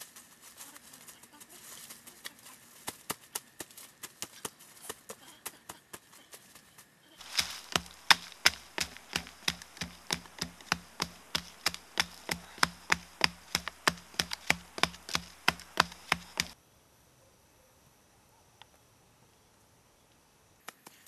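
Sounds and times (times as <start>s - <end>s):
tool chopping into soil: 7.2s - 16.6s.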